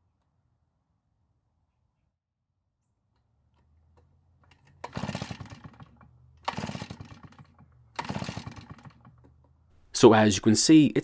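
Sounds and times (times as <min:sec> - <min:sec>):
recoil rope pull: 0:04.0 - 0:09.5
engine turning over in chuffs: 0:04.4 - 0:09.4.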